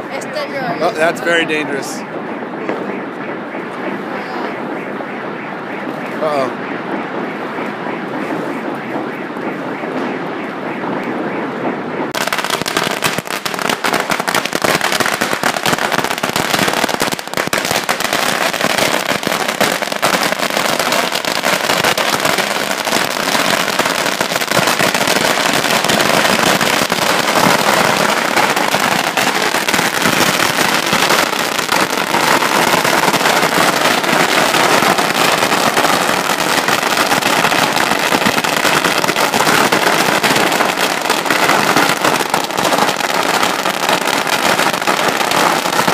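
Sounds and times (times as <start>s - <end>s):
firecrackers crackling: 0.0s - 45.9s.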